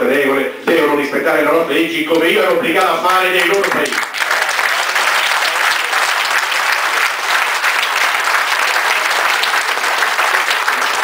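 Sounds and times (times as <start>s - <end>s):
audience applauding: 2.8s - 11.0s.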